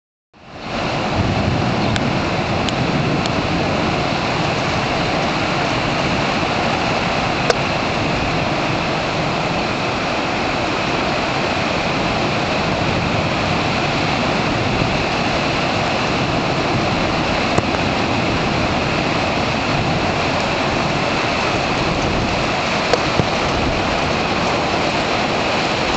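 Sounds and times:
wind and heavy rain rushing: 0.4s - 25.9s.

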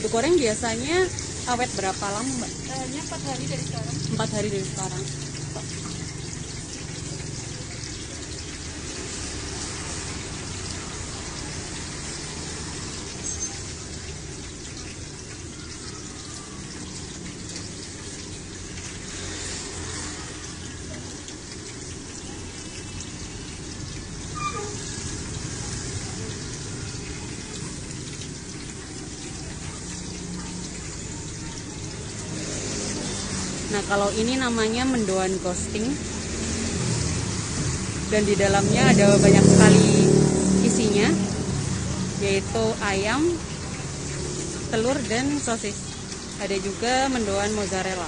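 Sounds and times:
food sizzling in hot oil: 0.0s - 48.0s.

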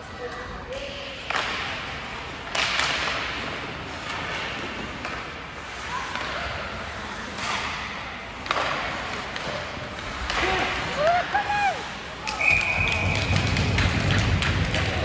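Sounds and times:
sticks striking puck: 2.5s - 5.4s, 8.4s - 10.9s, 13.0s - 15.0s.

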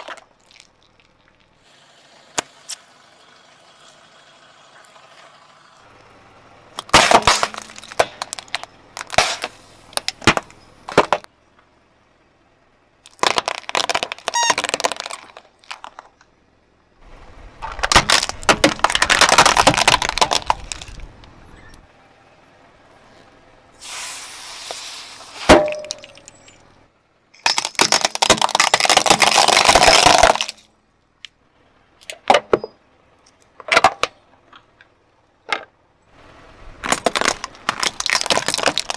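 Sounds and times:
plastic toys crushed under tyre: 0.0s - 1.6s, 6.8s - 11.3s, 13.0s - 16.2s, 17.6s - 21.3s, 27.4s - 30.7s, 36.8s - 38.9s.

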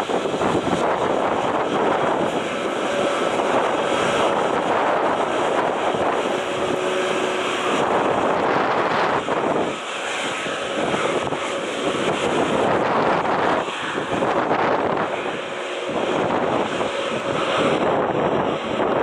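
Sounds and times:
jet engines running: 0.0s - 19.0s
wind buffeting microphone: 0.0s - 19.0s.

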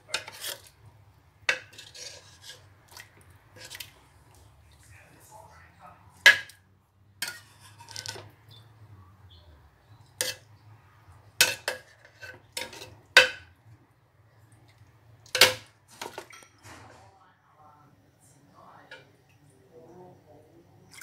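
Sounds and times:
metal ladle clinking in ceramic pot: 1.5s - 2.6s, 7.2s - 8.3s, 11.4s - 13.5s.

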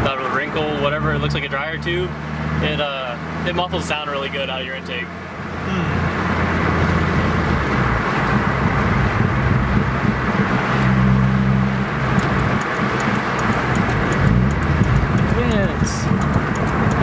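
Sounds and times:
car engine running: 0.0s - 17.0s
road noise: 0.0s - 17.0s
light regular ticking: 11.8s - 17.0s.

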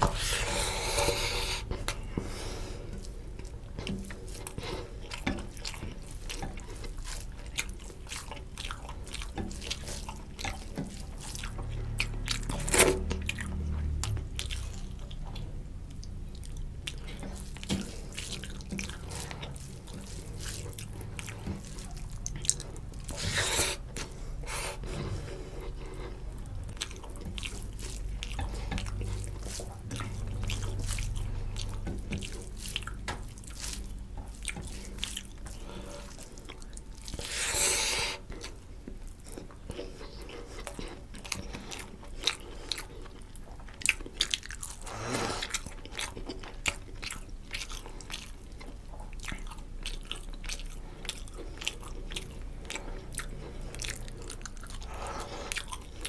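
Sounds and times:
wet chewing: 0.0s - 56.0s
fingers squishing rice: 16.0s - 24.8s.

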